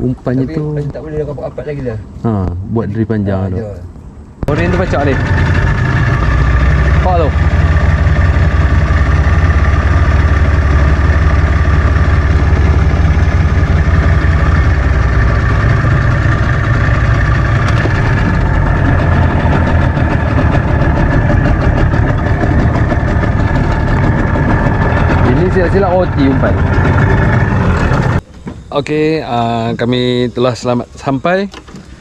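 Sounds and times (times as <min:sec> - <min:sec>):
outboard motor running: 0:04.5 - 0:28.2.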